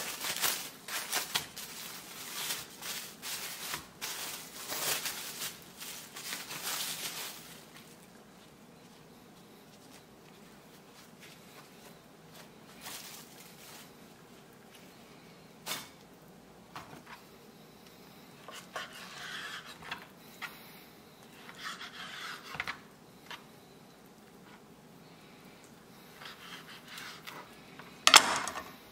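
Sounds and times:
plastic wrap rustling: 0.0s - 15.0s.

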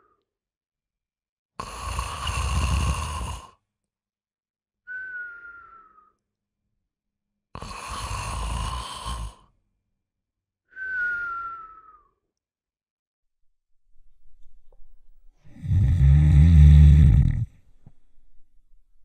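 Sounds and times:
man snoring: 1.6s - 3.6s, 7.5s - 9.5s, 15.4s - 17.6s
whistling breath: 4.8s - 6.4s, 10.6s - 12.4s.

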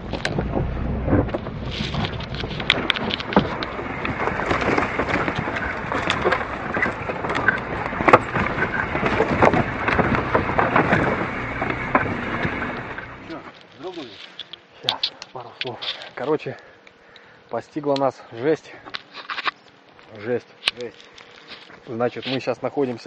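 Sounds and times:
low engine rumble: 0.0s - 13.6s
mud spattering: 0.0s - 16.4s
twigs and branches snapping: 1.6s - 17.3s, 18.9s - 23.0s.

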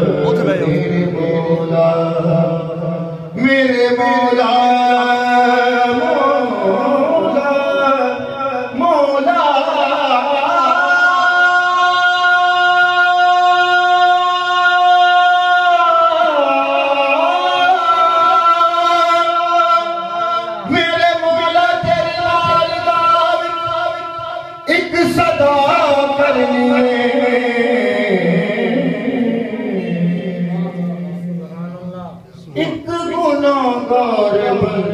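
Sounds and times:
man singing unaccompanied: 0.0s - 31.9s, 32.5s - 34.9s.

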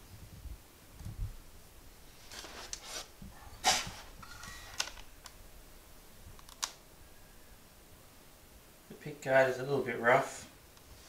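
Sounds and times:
handling clicks and scrapes: 2.2s - 5.1s.

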